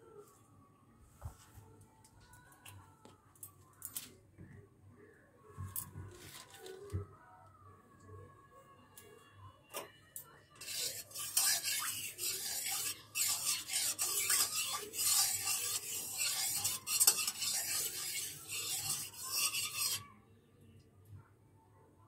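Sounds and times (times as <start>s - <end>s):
rough scraping strokes: 10.6s - 20.1s.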